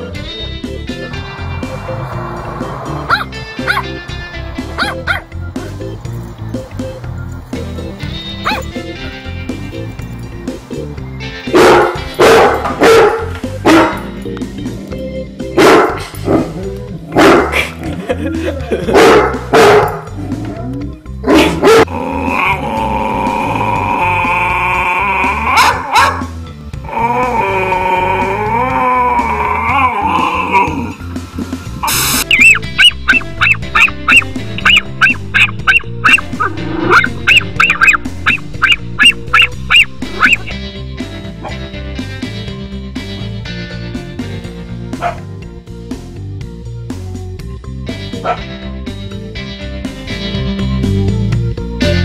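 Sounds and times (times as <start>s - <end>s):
background music: 0.0s - 52.0s
dog barking: 3.1s - 3.9s, 4.8s - 5.2s, 8.4s - 8.7s, 11.5s - 14.1s, 15.6s - 17.7s, 18.9s - 20.1s, 21.2s - 21.9s, 25.6s - 26.3s, 32.3s - 40.5s, 45.0s - 45.3s, 48.2s - 48.5s.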